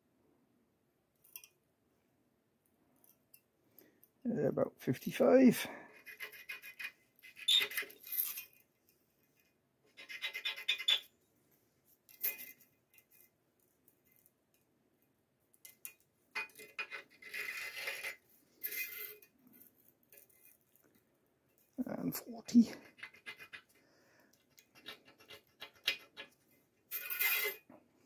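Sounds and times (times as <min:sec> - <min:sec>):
scriber scratching steel: 0:05.1 - 0:08.6, 0:09.9 - 0:11.1, 0:15.7 - 0:20.8, 0:22.2 - 0:27.8.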